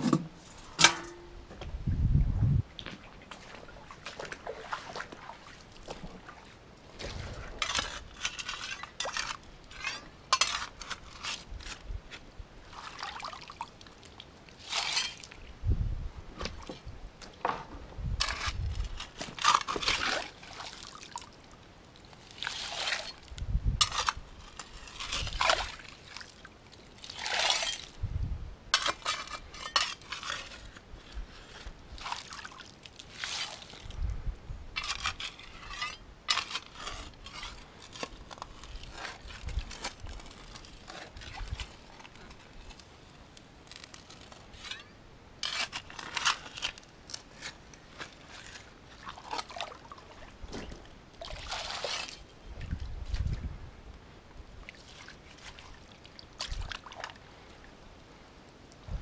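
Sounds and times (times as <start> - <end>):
creek water splashing: 3.0 - 7.5, 12.7 - 15.4, 19.4 - 23.3, 31.9 - 33.9, 47.4 - 50.5, 51.2 - 52.4, 54.6 - 58.1.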